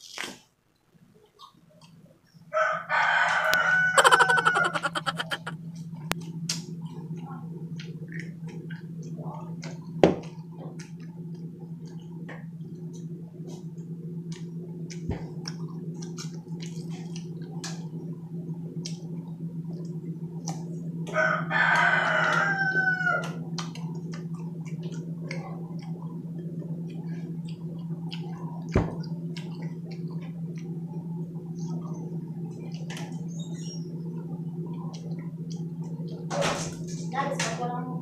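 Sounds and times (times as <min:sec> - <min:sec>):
rooster crowing: 0:02.5 - 0:05.5, 0:21.1 - 0:23.4
crunchy chewing: 0:14.2 - 0:18.0, 0:19.8 - 0:33.2.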